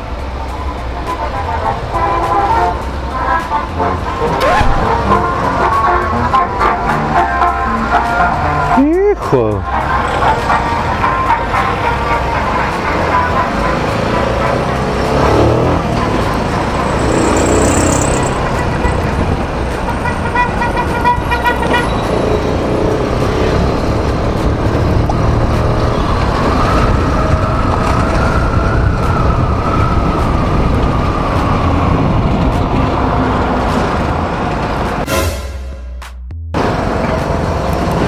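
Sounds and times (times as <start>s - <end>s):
wind and road noise: 0.0s - 35.3s, 36.5s - 38.0s
rising and falling whine: 16.6s - 18.6s
motorcycle engine running: 16.6s - 18.7s.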